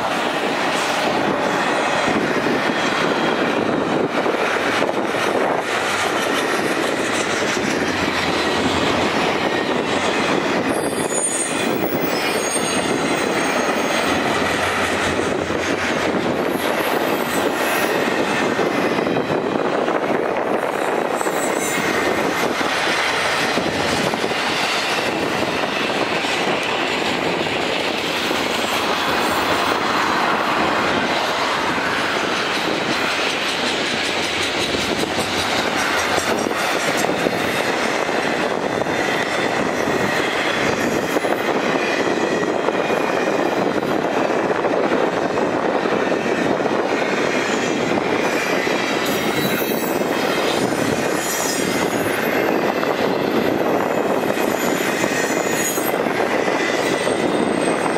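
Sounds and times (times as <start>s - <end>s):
clicking over rails: 0.0s - 57.9s
train wheels rushing on rail: 0.0s - 57.9s
high wheel squeal: 9.7s - 15.0s, 20.6s - 23.2s, 49.0s - 57.9s.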